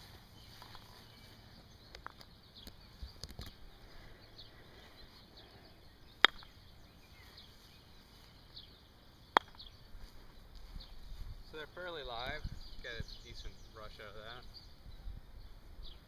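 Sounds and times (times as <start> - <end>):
croquet mallet striking ball: 6.2 - 6.5, 9.4 - 9.6.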